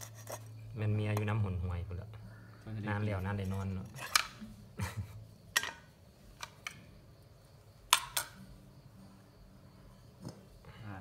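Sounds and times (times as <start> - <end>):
kitchen utensils clicking and knocking: 3.4 - 4.4, 5.5 - 6.8, 7.9 - 8.4.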